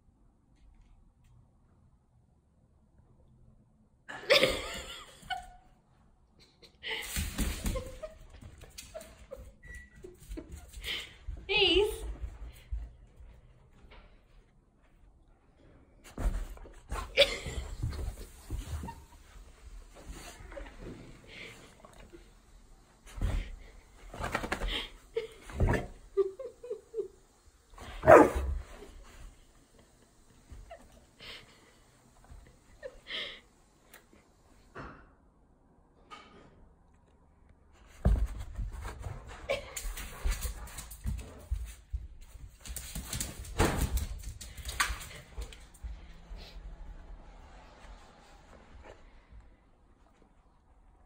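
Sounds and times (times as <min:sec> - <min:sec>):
dog barking: 0:28.0 - 0:28.5.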